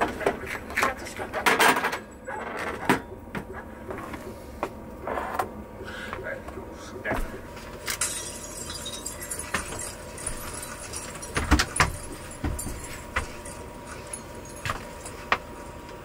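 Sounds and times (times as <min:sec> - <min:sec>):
clicks and rattling from rummaging: 0:00.0 - 0:03.1.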